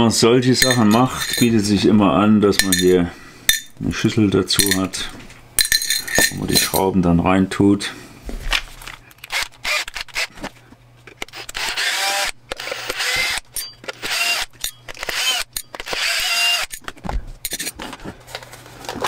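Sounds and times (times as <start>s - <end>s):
drill clicks: 9.1s - 10.3s, 11.2s - 16.8s
cordless drill motor whine: 9.2s - 10.5s, 11.3s - 16.8s.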